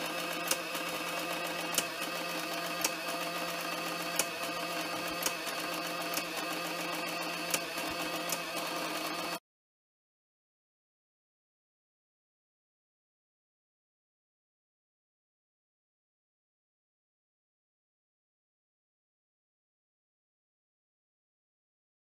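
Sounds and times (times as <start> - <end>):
impact printer printing: 0.0 - 9.4
light printer clicks: 0.2 - 3.4, 4.0 - 9.4.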